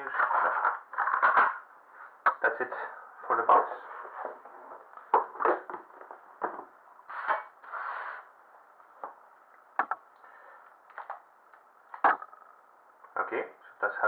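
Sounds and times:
mat scraping across table: 7.1 - 8.3.

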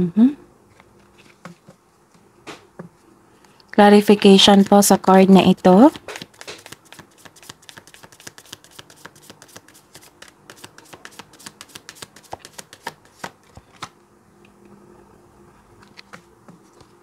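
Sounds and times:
faint steady hum: 0.0 - 17.0
cards being shuffled: 5.5 - 14.0, 15.8 - 17.0.

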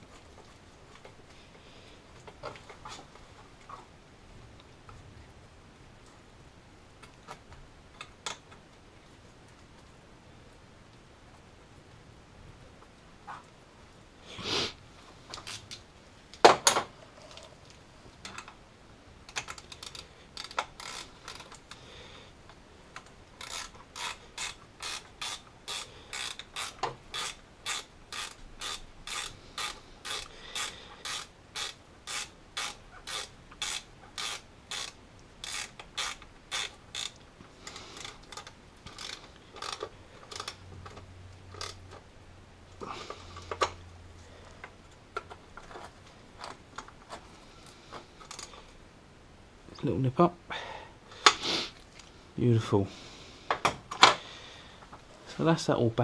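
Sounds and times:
hand ratchet clicking: 19.3 - 21.8, 23.4 - 41.9, 48.2 - 48.5.

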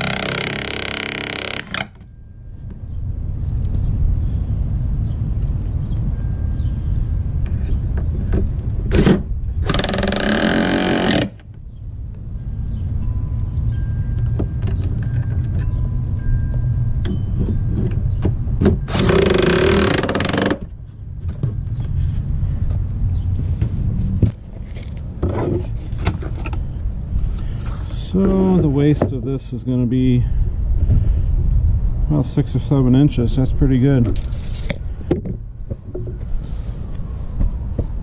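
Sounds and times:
cordless power driver driving screws: 0.0 - 2.0, 8.9 - 11.4, 18.9 - 20.6
steady low rumble: 2.1 - 9.8, 11.4 - 19.1, 20.6 - 38.0.

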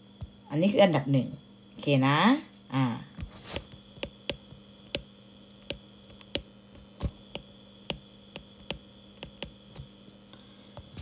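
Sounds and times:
faint steady hum: 0.0 - 11.0
stylus tapping on glass screen: 3.5 - 9.6.

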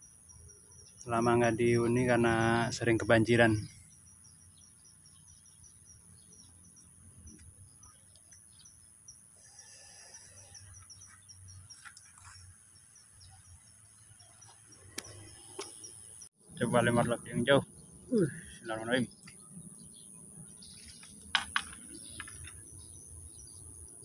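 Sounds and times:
insect chirps: 0.0 - 24.0.

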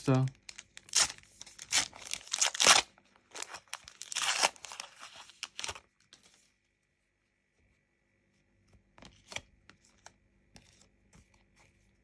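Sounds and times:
foil wrapper tearing and crinkling: 0.5 - 5.9.

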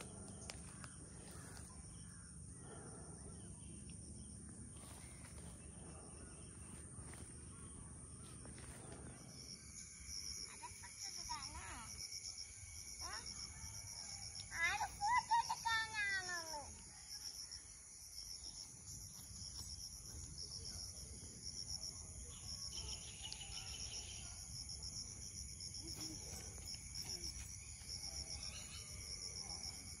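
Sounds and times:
insects chirping: 0.0 - 30.0
child's voice: 14.5 - 16.8.

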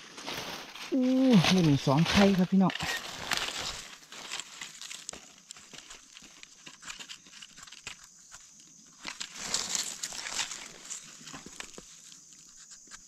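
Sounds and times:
dry leaves crackling and rustling: 0.0 - 8.0, 8.9 - 12.3
small clicks and scrapes: 2.1 - 13.0
knife digging in soil: 9.0 - 13.0.

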